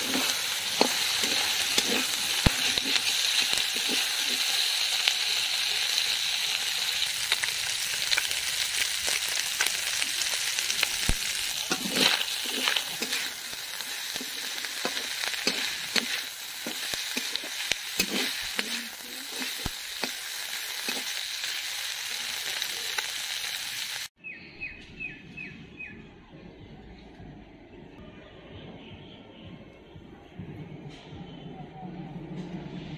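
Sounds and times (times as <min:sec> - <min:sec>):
metal spatula scraping pan: 0:00.0 - 0:04.5, 0:11.6 - 0:20.2
fish sizzling in oil: 0:00.0 - 0:24.2.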